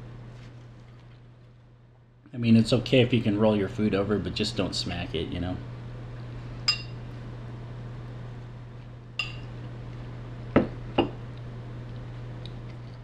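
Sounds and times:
steady low hum: 0.0 - 13.0
utensil clinking on bowl: 6.7 - 7.0, 9.2 - 9.5.

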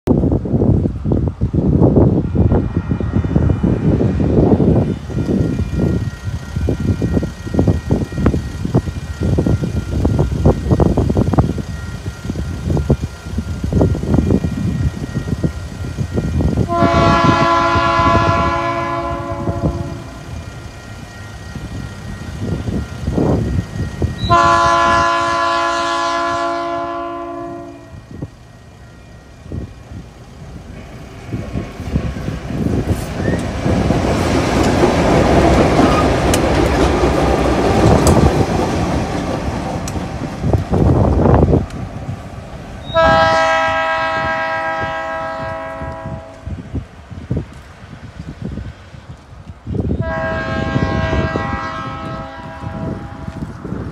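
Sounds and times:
wind rumble on microphone: 0.0 - 28.5, 29.3 - 53.9
locomotive engines and wheels rumbling: 0.1 - 53.9
locomotive air horn blasts: 16.6 - 20.4, 24.2 - 28.2, 42.8 - 46.6, 50.0 - 53.6.

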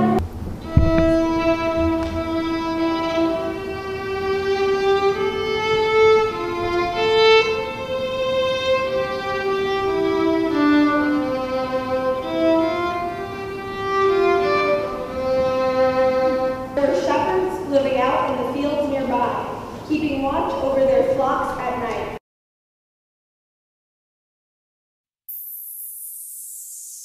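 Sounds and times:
solo violin slow melody: 0.0 - 16.9.

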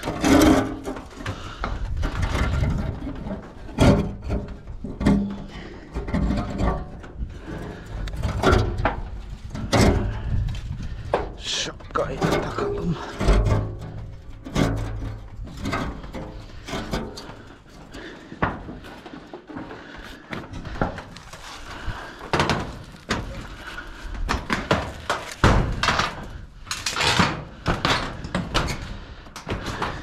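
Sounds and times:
footsteps on metal roof: 0.0 - 30.0
rustling: 7.3 - 27.1.

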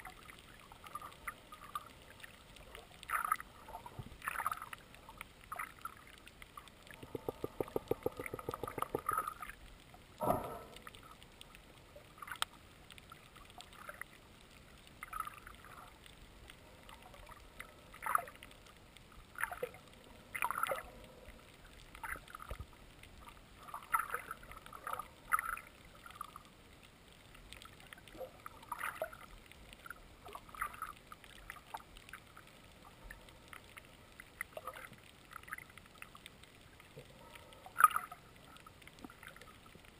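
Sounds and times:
underwater swishing and bubbling: 0.0 - 39.9
fast rattle of ticks: 7.0 - 9.3.

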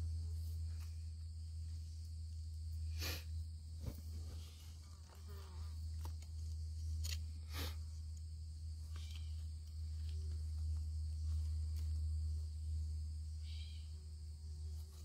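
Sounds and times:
insect drone: 0.0 - 15.0
stones and dirt clicking and scraping: 5.9 - 7.3.

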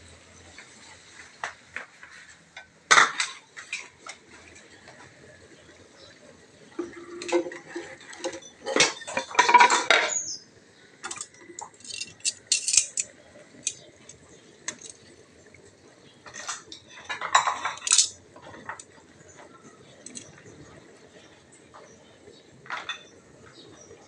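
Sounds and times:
metal cookware clattering: 2.0 - 5.1, 6.8 - 10.4, 11.0 - 15.1, 16.2 - 20.5, 22.6 - 23.3.

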